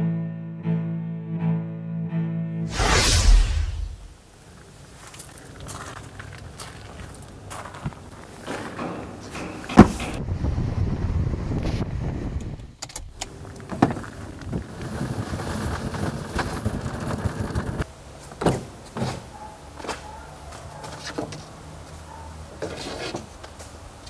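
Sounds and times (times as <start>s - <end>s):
low rolling rumble: 2.7s - 4.2s.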